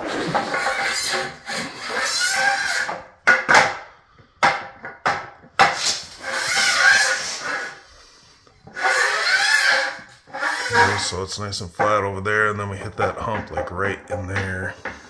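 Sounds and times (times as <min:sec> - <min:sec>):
metal level scraping on concrete: 0:00.0 - 0:03.0, 0:05.8 - 0:11.9.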